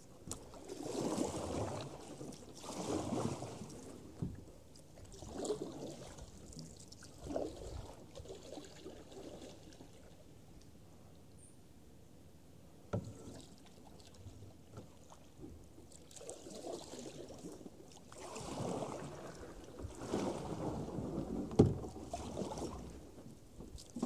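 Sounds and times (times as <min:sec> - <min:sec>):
paddle strokes splashing in water: 0:00.0 - 0:10.3, 0:13.0 - 0:24.0.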